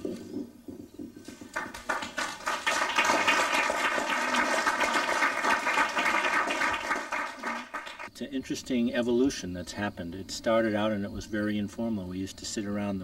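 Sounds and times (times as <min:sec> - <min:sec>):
audience applauding: 0:01.5 - 0:08.1.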